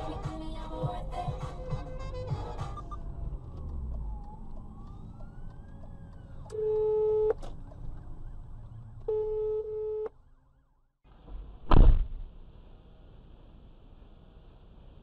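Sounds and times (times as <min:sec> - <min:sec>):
car horn blasts: 0:06.6 - 0:07.3
loud sharp thump: 0:11.2 - 0:12.3.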